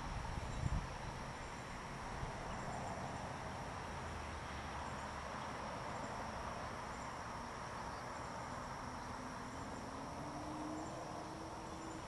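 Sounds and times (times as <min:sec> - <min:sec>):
insects trilling: 0:04.8 - 0:12.0.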